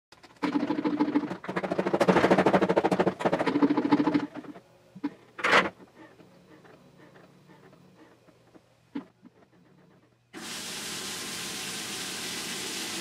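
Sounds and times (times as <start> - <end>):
golf balls clattering in drum: 0.2 - 6.7
washing machine motor hum: 0.2 - 13.0.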